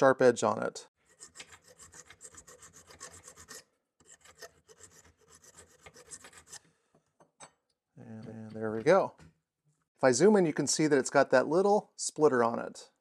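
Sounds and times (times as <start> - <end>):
file rasping on steel plate: 1.0 - 6.7.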